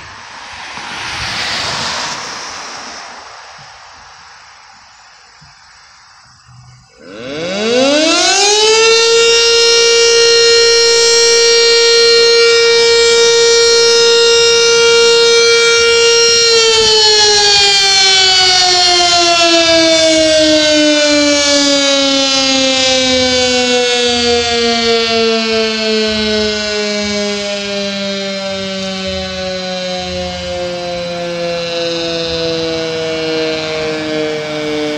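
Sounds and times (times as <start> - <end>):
warning siren winding up: 7.0 - 34.9.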